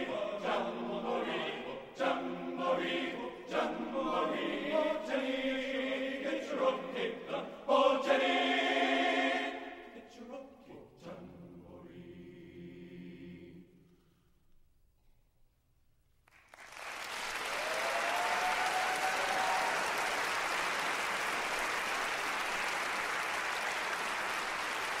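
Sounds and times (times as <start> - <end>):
choir holding a chord: 0.0 - 13.8
audience applause: 16.3 - 25.0.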